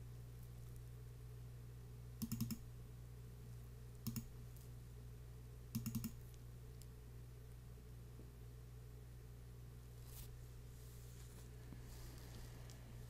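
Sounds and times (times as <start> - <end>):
faint low hum: 0.0 - 13.0
computer mouse clicking: 2.2 - 2.6, 4.0 - 4.3, 5.7 - 6.4.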